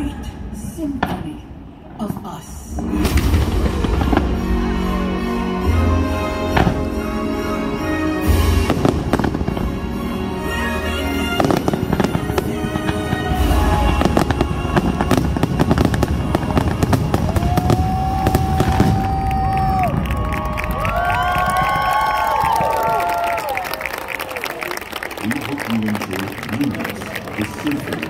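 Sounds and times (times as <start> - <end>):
fireworks bursts and crackle: 0.9 - 28.0
music: 2.7 - 19.8.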